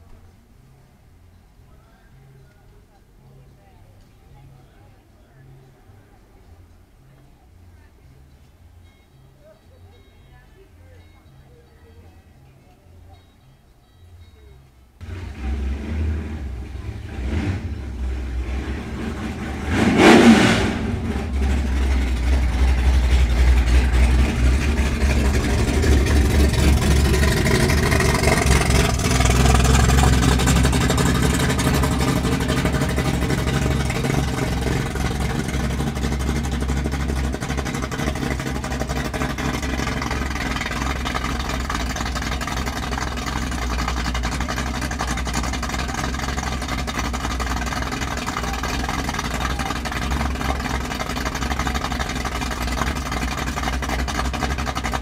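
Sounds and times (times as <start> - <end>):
loud engine burst: 15.0 - 42.8
car engine rumbling and revving: 15.0 - 55.0.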